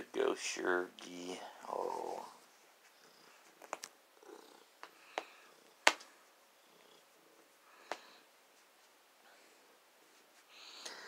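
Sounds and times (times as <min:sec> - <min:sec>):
cat purring: 0:01.1 - 0:08.4.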